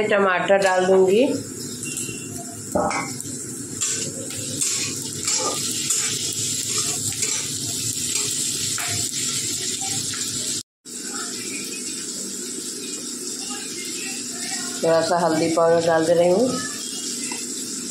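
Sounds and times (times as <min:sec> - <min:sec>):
vegetables sizzling in a pan: 0:00.0 - 0:17.9
metal spatula scraping a pan: 0:03.8 - 0:09.2.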